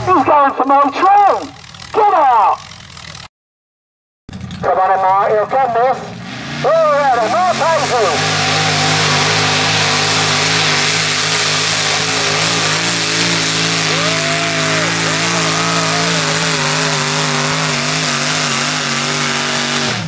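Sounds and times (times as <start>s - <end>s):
tractor engine running flat out: 0.0s - 3.3s, 4.3s - 20.0s.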